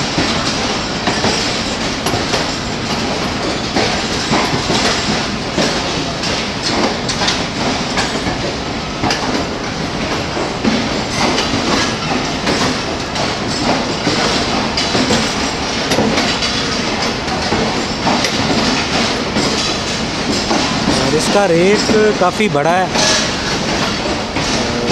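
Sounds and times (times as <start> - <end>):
train wheels rumbling on rail: 0.0 - 24.9
wheels clicking over rail joints: 0.0 - 24.9.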